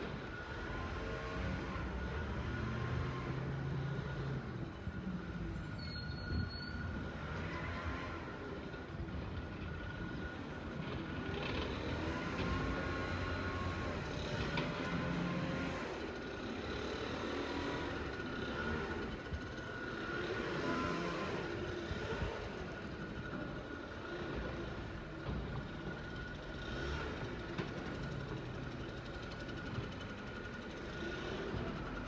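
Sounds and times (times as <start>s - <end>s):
distant garbage truck engine rumble: 0.0s - 32.0s.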